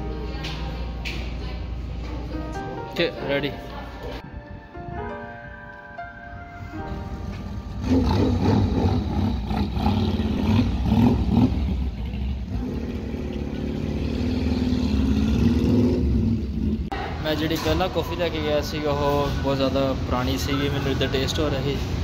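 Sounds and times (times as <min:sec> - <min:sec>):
motorcycle engines revving: 0:07.7 - 0:16.9
motorcycle pulling away: 0:07.7 - 0:16.9.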